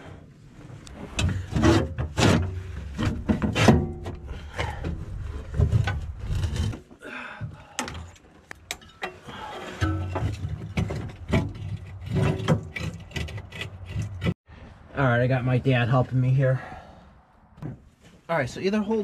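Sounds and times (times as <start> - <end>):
sheet metal knocking and scraping: 1.1 - 6.8, 8.7 - 14.4.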